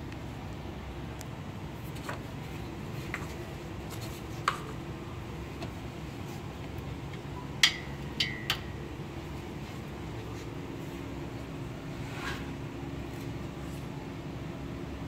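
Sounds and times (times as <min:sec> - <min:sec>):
low room hum: 0:00.0 - 0:15.0
light taps with high ring: 0:07.6 - 0:08.8.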